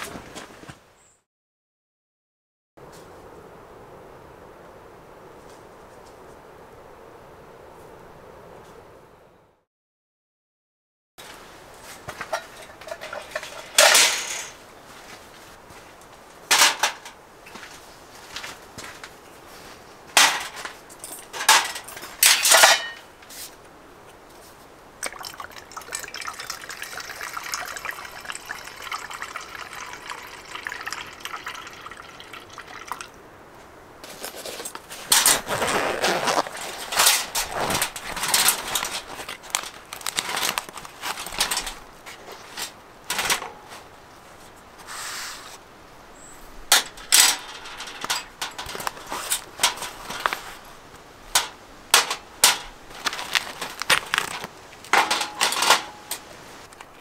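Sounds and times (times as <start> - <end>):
cookware clinking on metal: 12.2 - 14.6
metal cutlery clattering: 12.2 - 14.6, 16.5 - 17.2, 20.2 - 23.0, 36.5 - 41.8, 42.5 - 43.6, 46.7 - 50.6, 51.4 - 56.3
liquid pouring: 25.0 - 33.2
fabric pouch rustling: 34.0 - 42.6.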